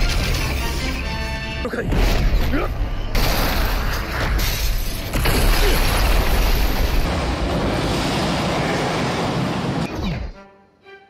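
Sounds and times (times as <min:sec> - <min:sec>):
crumbling debris: 0:03.1 - 0:09.6.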